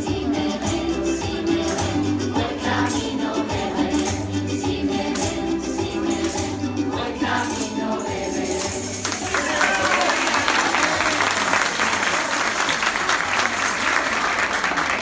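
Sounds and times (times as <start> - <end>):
music with tambourines: 0.0 - 10.0
audience applause: 9.0 - 15.0.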